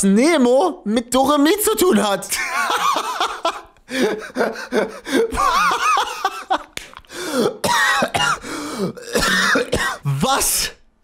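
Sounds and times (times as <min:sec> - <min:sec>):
man laughing hard: 0:02.4 - 0:07.2.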